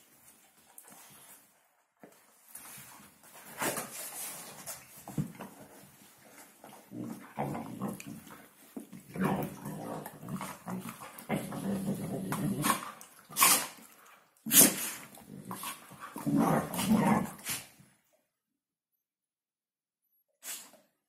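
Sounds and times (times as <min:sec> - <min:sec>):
dogs growling: 0:06.7 - 0:13.9, 0:14.8 - 0:17.7.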